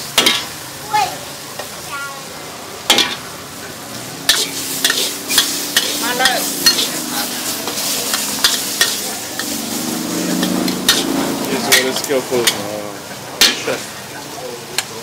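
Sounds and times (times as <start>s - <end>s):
spatula scraping and knocking wok: 0.0s - 0.6s, 2.8s - 13.9s
food sizzling: 0.0s - 15.0s.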